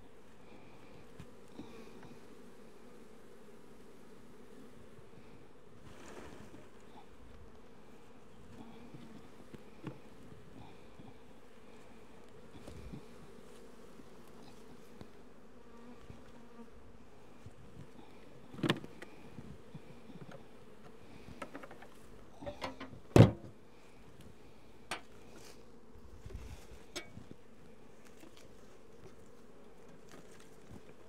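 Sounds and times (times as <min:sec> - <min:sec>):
bees buzzing: 0:06.6 - 0:31.0.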